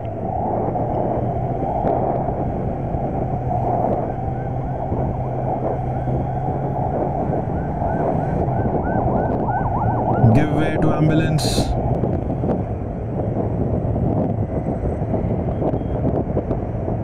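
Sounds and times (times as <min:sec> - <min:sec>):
wind on microphone: 0:00.0 - 0:17.0
motorcycle engine cruising: 0:02.2 - 0:10.4
faint ambulance siren: 0:03.4 - 0:11.8.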